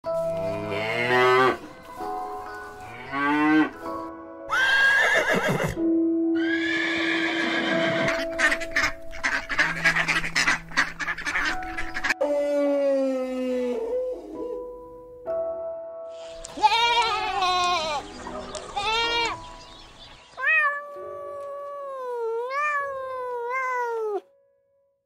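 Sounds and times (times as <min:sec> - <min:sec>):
background music: 0:00.0 - 0:25.0
horse whinnying: 0:04.5 - 0:05.8, 0:06.4 - 0:08.3.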